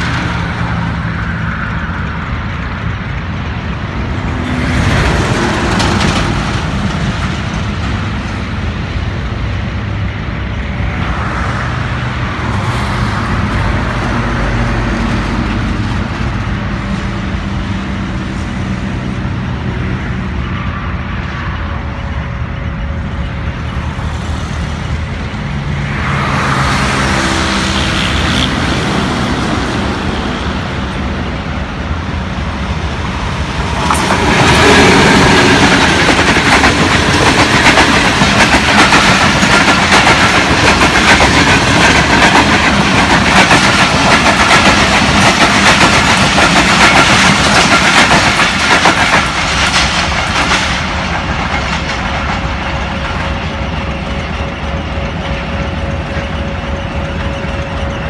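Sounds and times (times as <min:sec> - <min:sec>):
train wheels clattering over rail joints: 0:00.0 - 0:10.5, 0:27.7 - 0:58.0
diesel locomotive passing: 0:00.0 - 0:58.0.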